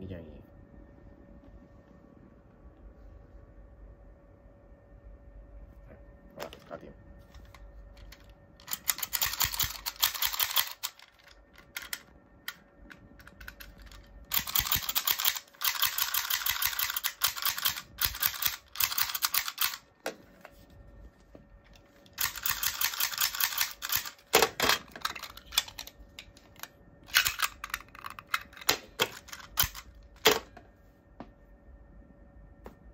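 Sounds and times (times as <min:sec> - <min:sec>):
plastic toy clicking and ratcheting: 0:08.0 - 0:12.6, 0:13.2 - 0:19.9, 0:22.2 - 0:30.5.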